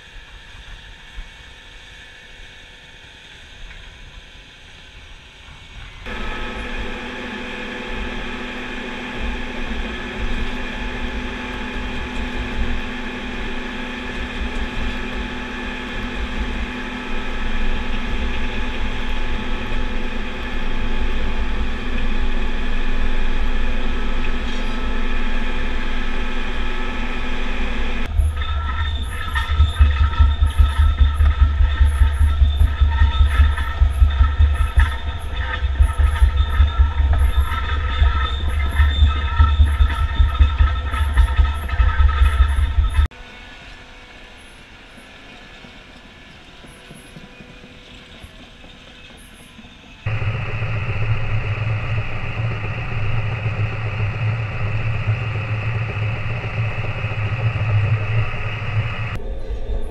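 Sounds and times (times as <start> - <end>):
machine engine running under load: 6.0 - 59.9
mechanical rattling: 28.0 - 43.1.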